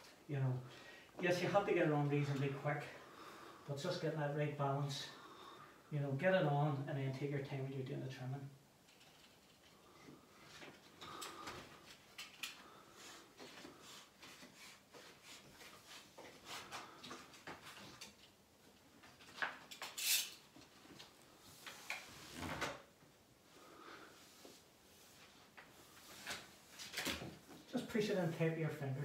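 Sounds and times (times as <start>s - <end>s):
small clicks and scrapes: 8.8s - 12.6s.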